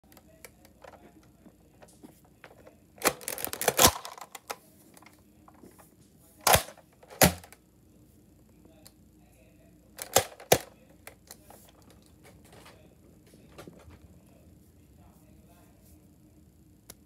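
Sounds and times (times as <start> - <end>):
plastic clattering: 0.7 - 5.8, 6.4 - 7.6, 10.0 - 12.8
sharp plastic clacks: 2.4 - 5.2, 6.4 - 7.6, 10.0 - 12.8
toy pistol clicks and rattles: 3.0 - 4.6, 10.0 - 10.7.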